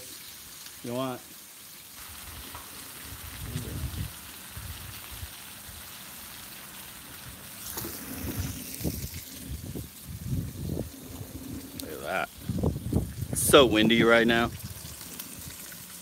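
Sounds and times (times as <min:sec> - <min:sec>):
meat sizzling on griddle: 0:00.0 - 0:16.0
wind buffeting microphone: 0:03.0 - 0:05.8, 0:07.2 - 0:15.6.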